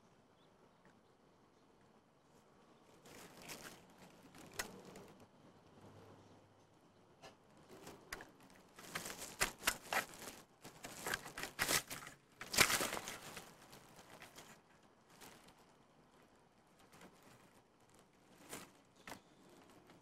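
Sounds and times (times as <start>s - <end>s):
dry grass rustling and crackling: 2.9s - 5.3s, 7.7s - 20.0s.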